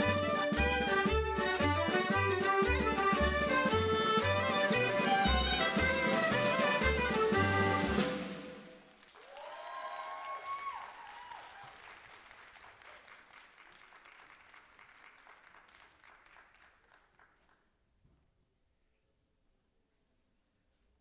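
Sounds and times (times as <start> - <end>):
audience cheering: 4.4 - 13.2
audience applauding: 8.8 - 17.7.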